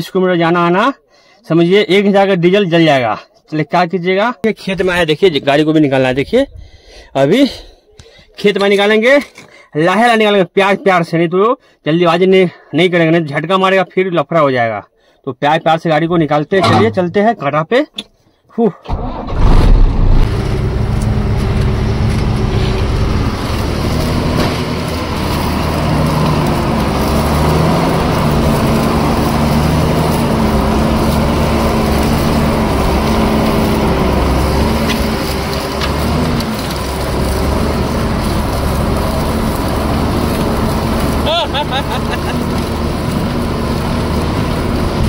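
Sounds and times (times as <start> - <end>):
diesel truck engine: 18.9 - 45.0.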